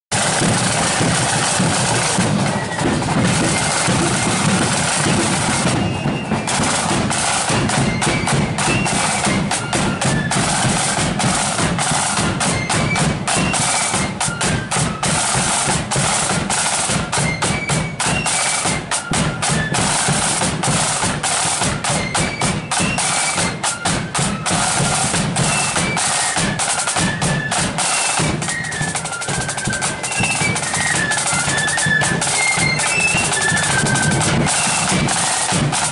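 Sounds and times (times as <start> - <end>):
snare drums with rolls: 0.1 - 35.9
bass drum: 0.2 - 13.3.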